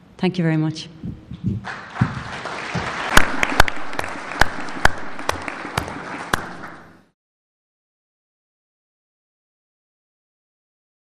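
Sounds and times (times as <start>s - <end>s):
audience applauding: 1.6s - 7.1s
sharp loud single claps: 1.8s - 7.0s.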